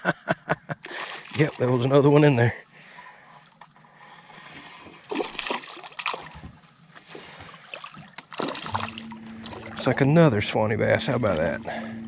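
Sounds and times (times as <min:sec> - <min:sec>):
fish splashing at water surface: 0:04.6 - 0:06.5, 0:07.1 - 0:10.0.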